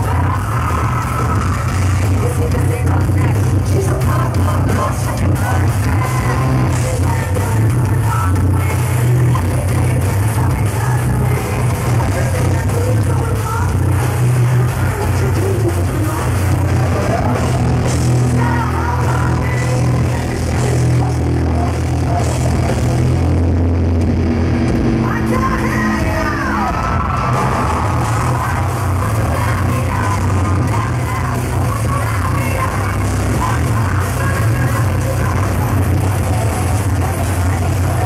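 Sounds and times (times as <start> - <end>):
woman singing: 0.0 - 22.8, 25.0 - 38.0
heavy metal band playing: 0.0 - 38.0.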